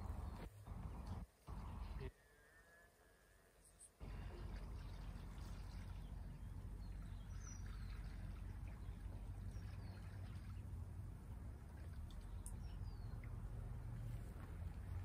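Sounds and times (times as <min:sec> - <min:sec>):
liquid trickling: 0:04.0 - 0:15.0.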